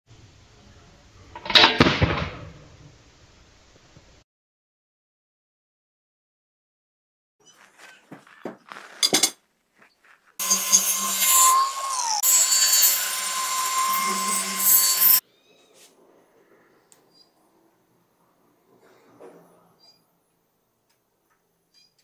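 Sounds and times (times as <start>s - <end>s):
power tool whining: 10.4s - 15.2s.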